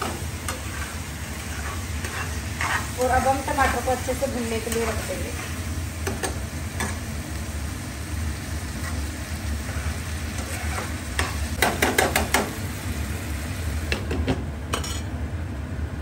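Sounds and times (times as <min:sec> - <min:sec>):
spoon stirring and scraping pan: 0:00.0 - 0:07.1, 0:08.7 - 0:12.5
masala sizzling: 0:00.0 - 0:15.1.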